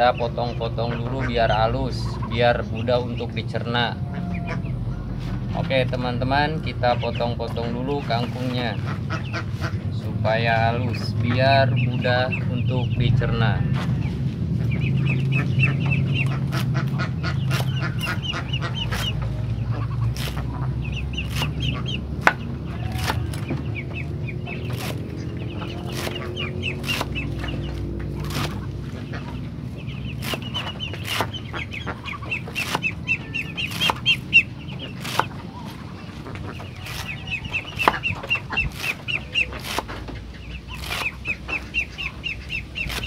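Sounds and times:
poultry clucking: 0:00.0 - 0:43.0
cleaver chopping vegetables: 0:17.4 - 0:19.3, 0:20.0 - 0:28.9, 0:30.1 - 0:31.6, 0:32.2 - 0:35.8, 0:36.5 - 0:40.1, 0:40.7 - 0:41.6.

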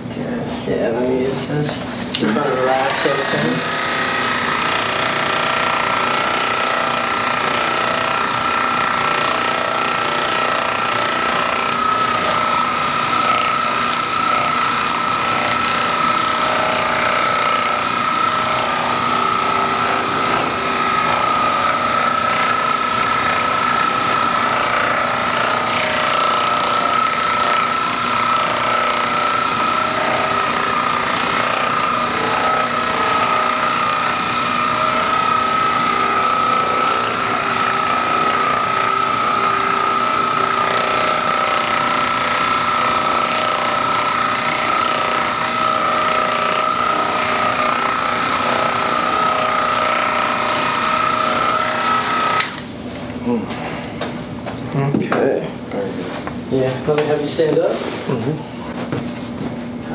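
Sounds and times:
massage gun whining: 0:00.9 - 0:59.9.

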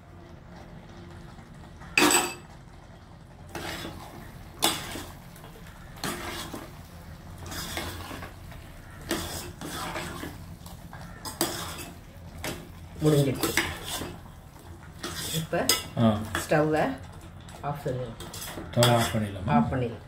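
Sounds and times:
spoon scraping in pot: 0:03.5 - 0:16.6, 0:18.2 - 0:19.4.

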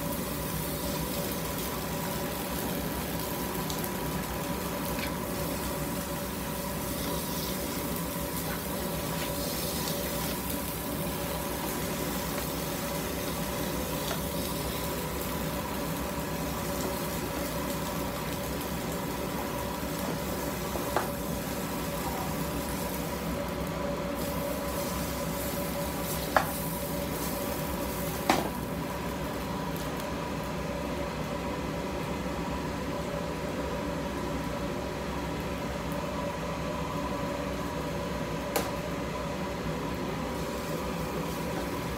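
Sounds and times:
pork rinds sizzling in pan: 0:00.0 - 0:30.7, 0:40.2 - 0:41.9
steady mechanical hum: 0:00.0 - 0:41.9.

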